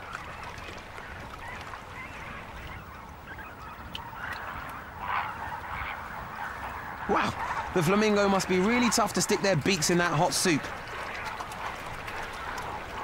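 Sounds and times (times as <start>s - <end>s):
flamingos honking: 0.0s - 13.0s.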